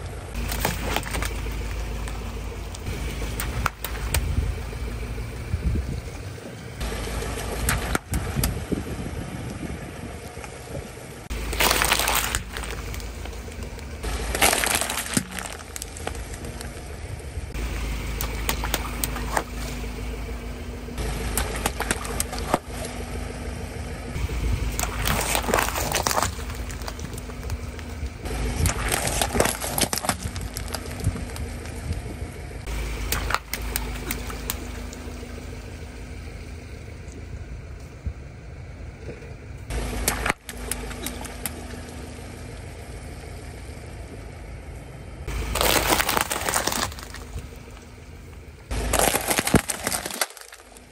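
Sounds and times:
car engine running: 0.0s - 50.9s
tyre rolling on wet asphalt: 0.1s - 5.4s, 10.5s - 23.5s, 24.2s - 36.2s, 45.3s - 50.9s
water balloons bursting with splashes: 0.3s - 4.8s, 11.3s - 16.8s, 17.5s - 20.2s, 20.9s - 23.1s, 24.2s - 31.6s, 32.7s - 35.5s, 39.7s - 42.0s, 45.3s - 47.9s, 48.7s - 50.9s.

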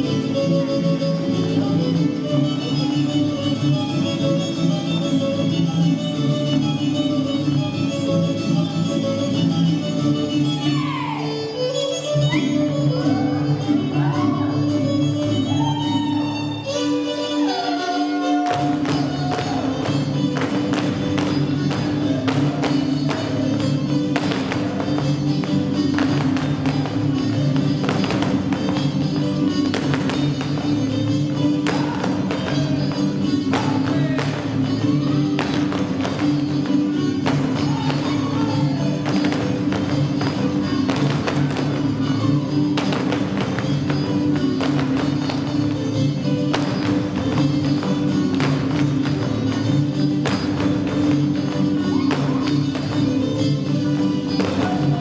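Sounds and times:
folk music playing: 0.0s - 55.0s
dancers stamping on wooden floor: 18.5s - 34.6s, 35.2s - 42.0s, 42.6s - 53.2s.

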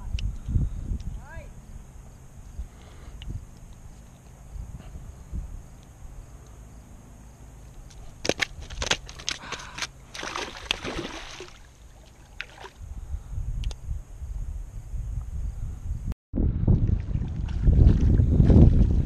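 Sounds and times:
wind on microphone: 0.0s - 1.8s, 4.4s - 5.8s, 12.3s - 19.0s
fish slapping on rocks: 7.9s - 12.7s
water splashing: 8.2s - 12.8s.

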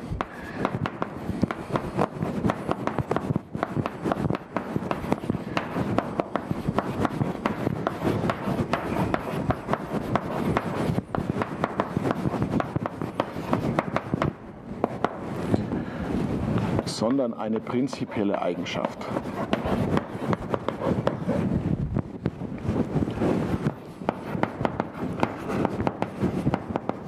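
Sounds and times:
chalk writing on a blackboard: 1.4s - 14.2s, 17.7s - 21.5s, 24.1s - 26.1s.

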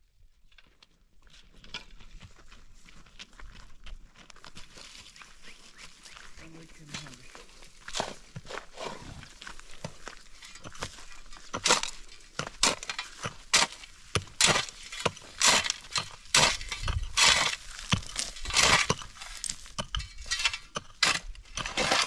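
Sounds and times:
shovel scraping stony ground: 4.6s - 22.0s.

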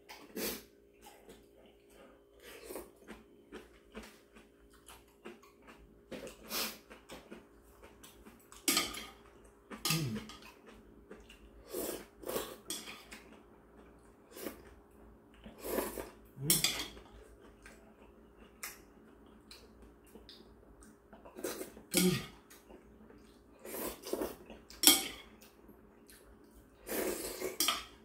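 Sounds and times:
faint steady hum: 0.0s - 28.0s
chewing: 0.9s - 14.7s, 15.3s - 28.0s
slurping noodles: 15.5s - 16.6s, 26.8s - 27.6s.

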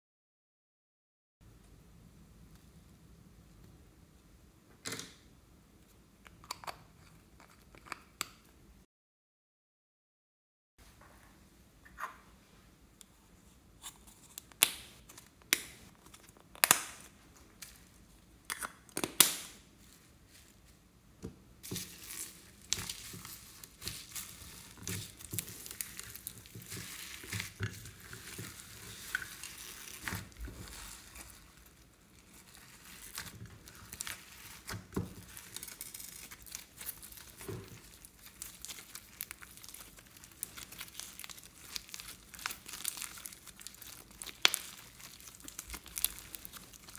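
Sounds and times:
slime crackling and squishing: 21.6s - 46.9s.

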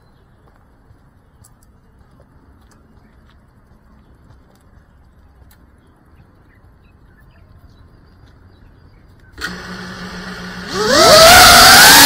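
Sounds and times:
drone motors humming: 9.2s - 12.0s.

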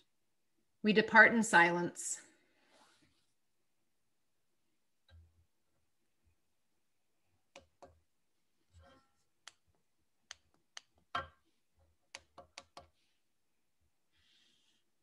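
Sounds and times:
faint small clicks and taps: 9.4s - 11.4s.

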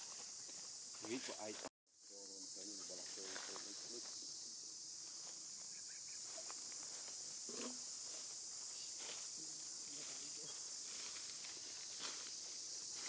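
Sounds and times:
insect chorus drone: 0.0s - 13.0s.

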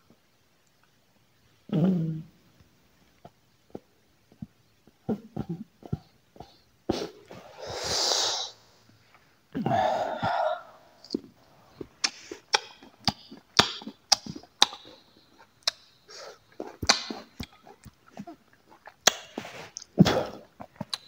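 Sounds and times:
rough breath: 6.4s - 12.5s, 16.1s - 16.7s
breathy exhale: 7.3s - 8.8s
wet chewing clicks and smacks: 11.0s - 21.0s.

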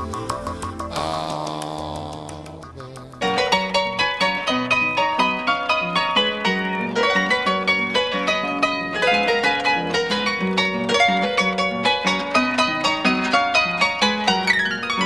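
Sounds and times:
harp music: 3.2s - 15.0s.

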